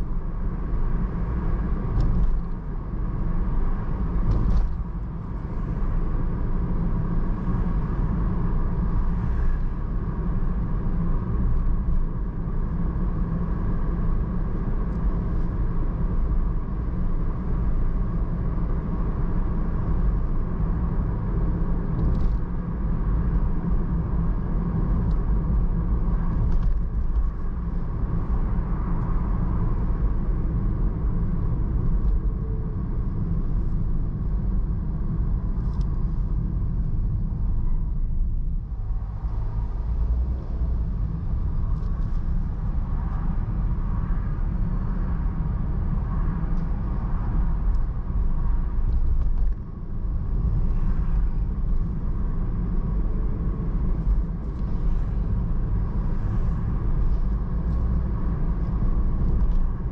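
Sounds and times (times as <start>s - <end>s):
car engine rumble: 0.0s - 59.9s.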